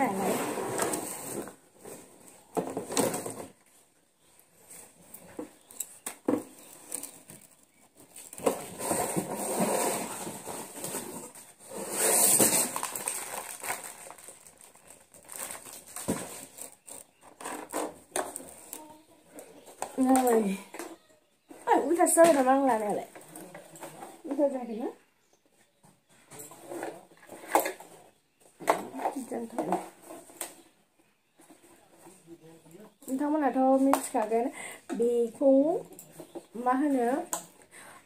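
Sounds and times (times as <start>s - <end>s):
cardboard rustling and crinkling: 0.0s - 20.4s.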